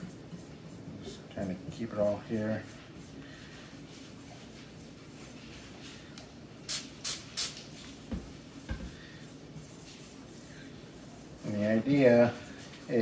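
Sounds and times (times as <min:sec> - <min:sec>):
spray bottle hissing spritzes: 0:06.6 - 0:07.7.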